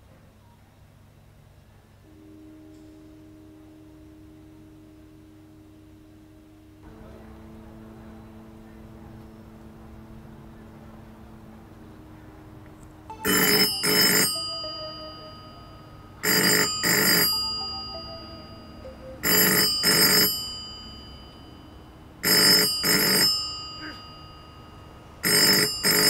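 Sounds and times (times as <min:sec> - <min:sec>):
telephone double ring: 0:13.1 - 0:26.0.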